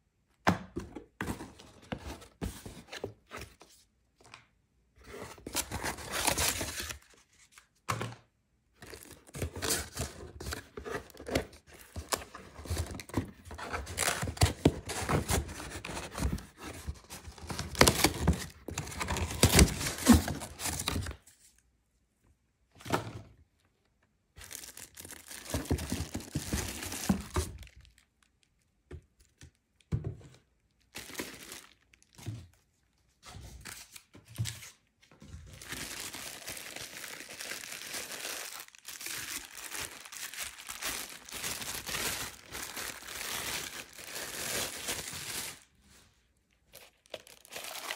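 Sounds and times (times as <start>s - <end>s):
plastic wrap crinkling: 24.4s - 28.6s, 30.8s - 32.2s, 35.6s - 45.7s, 46.7s - 47.9s.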